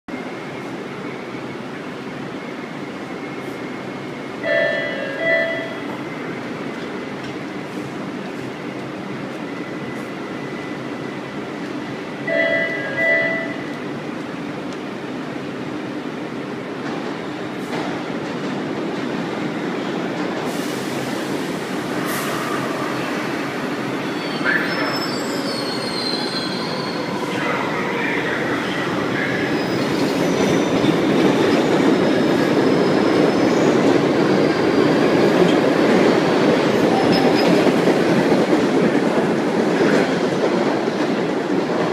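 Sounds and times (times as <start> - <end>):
subway train pulling out: 0.1 - 41.9
brief tone: 12.3 - 13.7
wheels squealing on rails: 20.4 - 35.7, 36.7 - 38.1.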